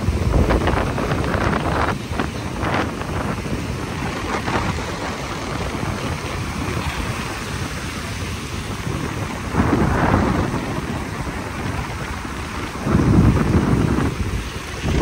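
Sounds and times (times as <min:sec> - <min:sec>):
ocean surf rushing: 0:00.0 - 0:15.0
wave crash: 0:00.0 - 0:15.0.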